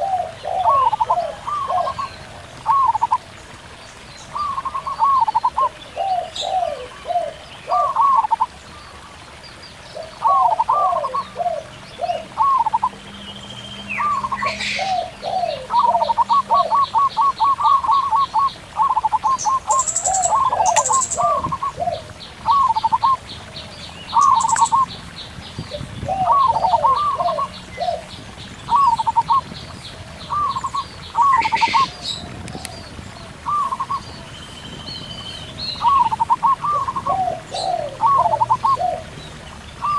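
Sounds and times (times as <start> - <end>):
doves cooing: 0.0 - 3.3, 4.3 - 13.2, 13.9 - 23.2, 24.1 - 25.0, 25.6 - 34.3, 35.8 - 39.9
stream babbling: 0.0 - 39.9
bird ticking: 14.0 - 21.9, 24.1 - 24.9
high bird chirps: 24.1 - 24.9, 30.3 - 31.9.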